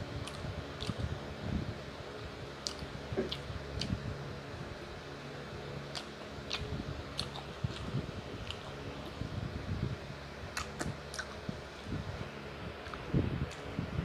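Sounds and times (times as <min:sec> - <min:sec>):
chewing and mouth clicks: 0:00.2 - 0:01.1, 0:02.6 - 0:04.0, 0:05.9 - 0:09.2, 0:10.5 - 0:12.0, 0:12.8 - 0:13.7.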